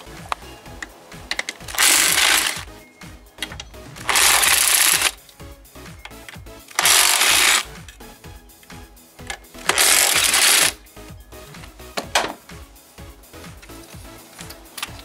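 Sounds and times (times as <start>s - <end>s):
background music: 0.0s - 15.0s.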